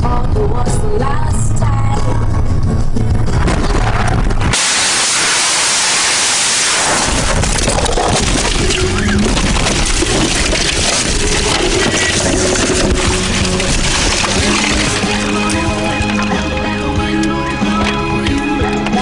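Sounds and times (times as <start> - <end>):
car tumbling heavy rumbling: 0.0 - 17.2
car crash rushing noise: 3.4 - 15.3.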